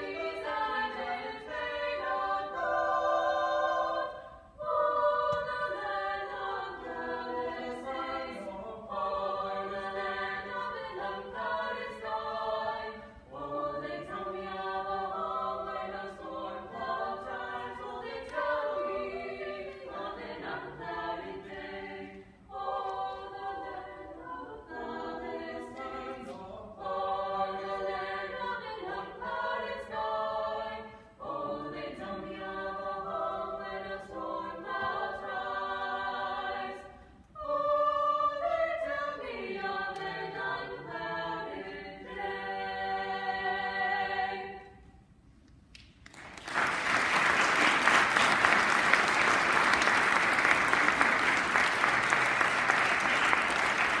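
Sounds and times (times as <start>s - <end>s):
a cappella vocal ensemble singing: 0.0s - 54.0s
audience applause: 46.1s - 54.0s.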